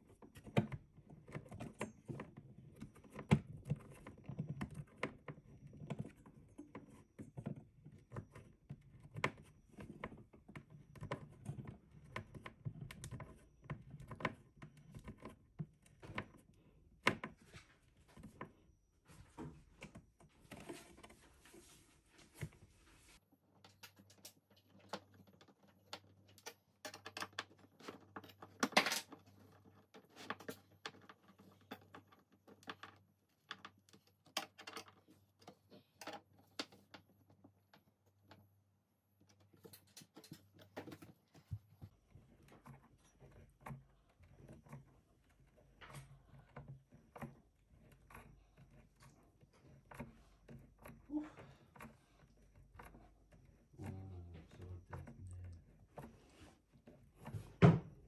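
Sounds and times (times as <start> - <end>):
hand screwdriver screwing: 39.3 - 53.7.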